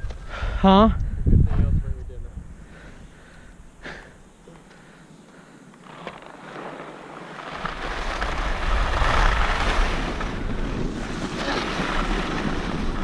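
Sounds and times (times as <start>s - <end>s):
wind buffeting microphone: 0.0s - 3.8s, 8.0s - 13.0s.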